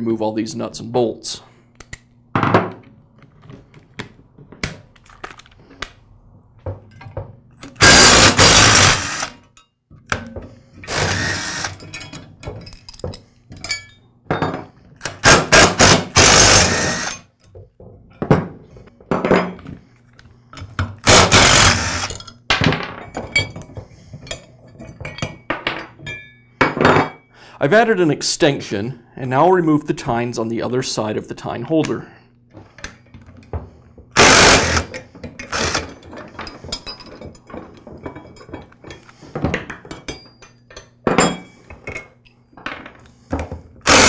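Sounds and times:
impact driver hammering: 7.8s - 9.3s, 15.1s - 17.2s, 21.0s - 22.1s, 34.2s - 34.9s.

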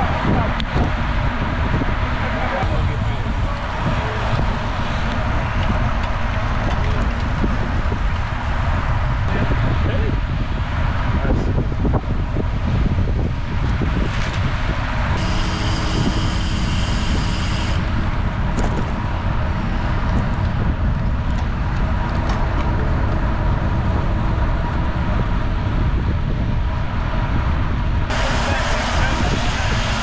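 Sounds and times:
bicycle road noise: 0.0s - 30.0s
wind rushing over microphone: 0.0s - 30.0s
steady buzzing tone: 15.1s - 20.0s.

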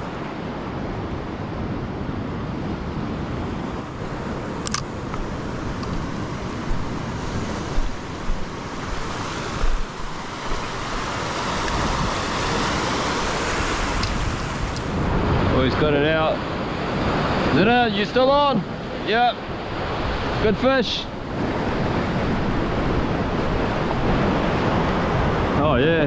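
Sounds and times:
surf washing over rocks: 0.0s - 26.0s
wind on microphone: 0.0s - 26.0s
sharp click: 4.6s - 5.2s.

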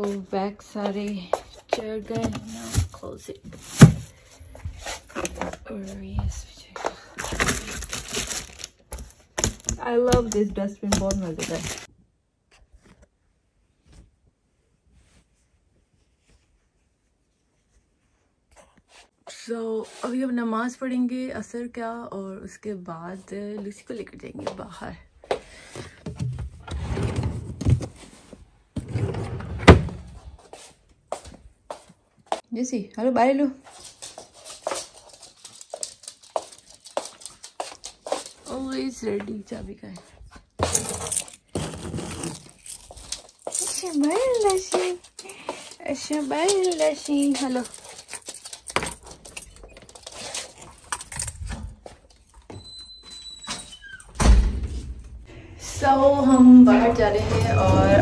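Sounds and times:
papers rustling: 7.0s - 11.9s, 33.7s - 39.6s, 40.6s - 52.4s
drawer opening: 26.1s - 28.2s, 28.8s - 30.2s, 40.6s - 43.2s, 56.2s - 58.0s
keys clicking and knocking: 33.8s - 38.5s, 40.6s - 52.5s.

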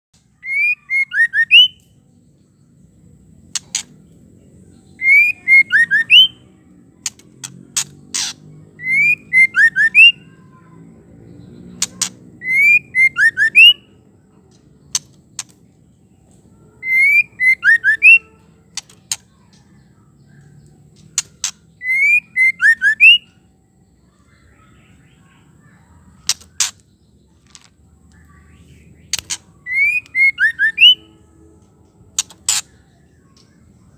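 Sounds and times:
bird whistled call: 0.4s - 1.9s, 5.0s - 6.4s, 8.8s - 10.2s, 12.4s - 13.9s, 16.8s - 18.3s, 21.8s - 23.3s, 29.6s - 31.1s.

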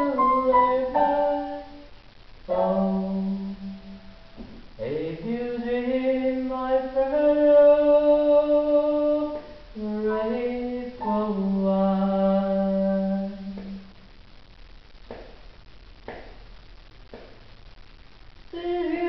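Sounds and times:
electronic keyboard slow melody: 0.0s - 1.9s, 2.5s - 4.4s.

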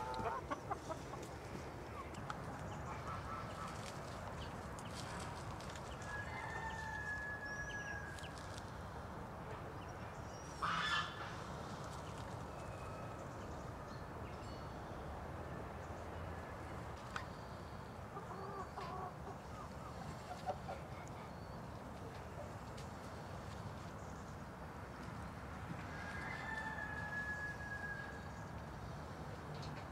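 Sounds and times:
chickens clucking: 0.0s - 6.1s, 18.1s - 22.9s
outdoor ambience: 0.0s - 29.9s.

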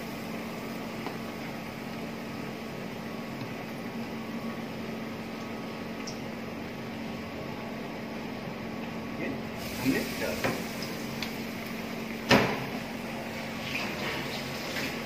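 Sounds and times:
food sizzling in hot oil: 9.6s - 12.0s, 12.6s - 15.0s.

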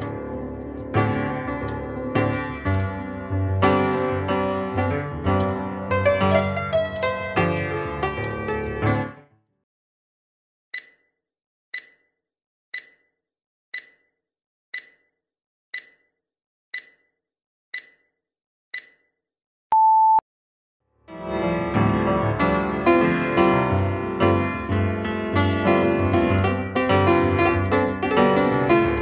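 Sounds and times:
music: 0.0s - 9.5s, 21.0s - 29.0s
steady beep: 10.8s - 11.0s, 11.8s - 12.1s, 12.8s - 13.1s, 13.8s - 14.1s, 14.8s - 15.1s, 15.8s - 16.1s, 16.8s - 17.1s, 17.8s - 18.0s, 18.8s - 19.0s, 19.7s - 20.2s
countdown timer ticking: 10.8s - 11.1s, 11.8s - 12.1s, 12.8s - 13.1s, 13.8s - 14.1s, 14.8s - 15.1s, 15.8s - 16.1s, 16.8s - 17.1s, 17.8s - 18.1s, 18.8s - 19.0s.

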